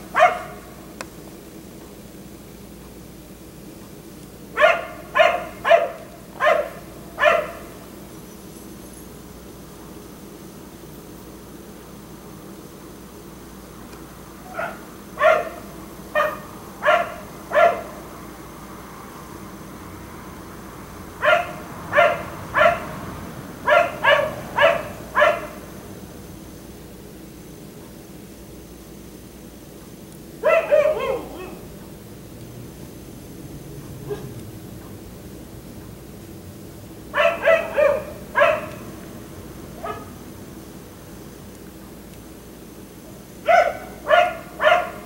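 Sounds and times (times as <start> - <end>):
dog barking: 0.1 - 0.7, 4.6 - 7.8, 14.5 - 18.0, 21.2 - 23.0, 23.6 - 25.6, 30.4 - 31.7, 34.0 - 34.4, 37.1 - 38.9, 39.8 - 40.2, 43.4 - 45.0.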